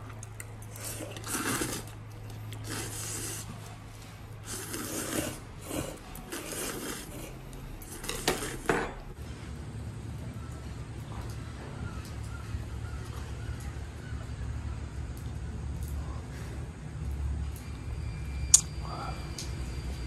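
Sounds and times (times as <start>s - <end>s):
objects scraping and rubbing: 0.2s - 9.2s.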